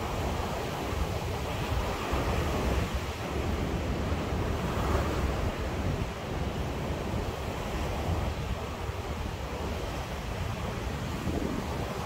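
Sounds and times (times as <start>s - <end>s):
ocean surf washing ashore: 0.0s - 12.0s
wind buffeting microphone: 0.0s - 12.0s.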